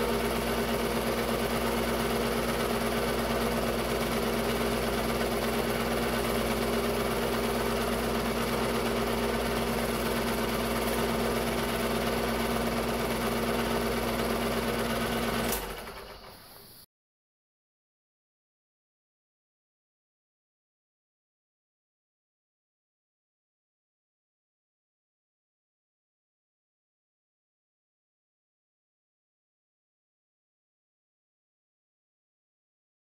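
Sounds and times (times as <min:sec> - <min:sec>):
film projector whirring: 0:00.0 - 0:16.7
projector stopping click: 0:14.7 - 0:16.7.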